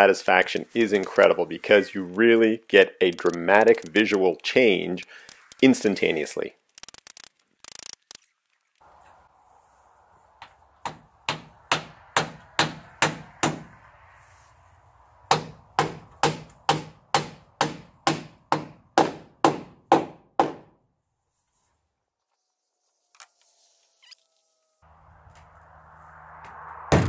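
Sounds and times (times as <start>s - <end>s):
hammer driving nails into wood: 15.3s - 20.7s.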